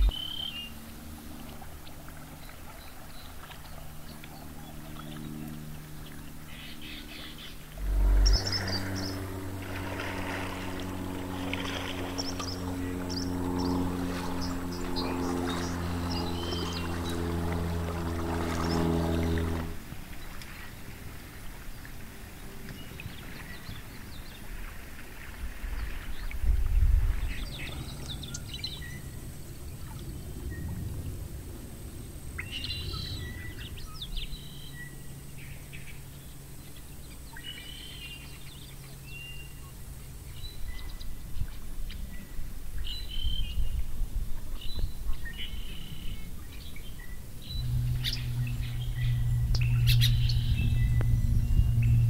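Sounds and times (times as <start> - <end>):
birds chirping: 0.0 - 1.5, 2.3 - 19.8, 44.6 - 52.0
low steady hum: 0.0 - 52.0.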